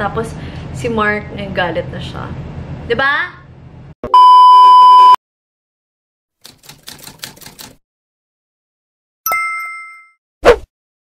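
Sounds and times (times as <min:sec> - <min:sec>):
test-pattern beep: 0:04.0 - 0:05.2
typewriter-style clicks: 0:06.4 - 0:07.8.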